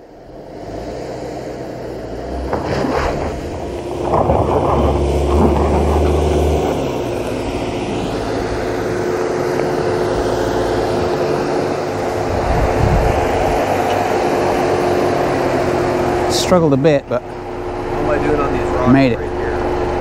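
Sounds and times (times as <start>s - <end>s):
car engine under load: 0.0s - 20.0s
stones crunching under tyres: 2.3s - 8.7s.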